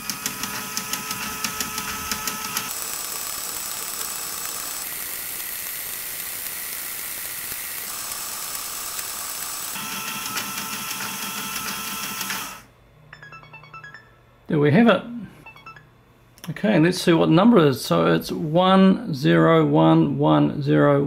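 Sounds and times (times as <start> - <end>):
counter reels clicking: 0.0 - 12.6
motor whirring: 0.0 - 12.6.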